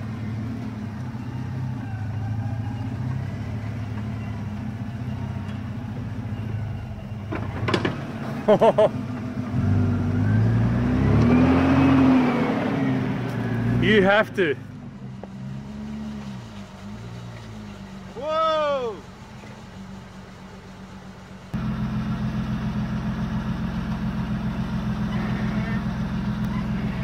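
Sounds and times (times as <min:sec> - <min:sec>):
truck engine running and revving: 0:00.0 - 0:27.0
person shouting: 0:18.2 - 0:19.1.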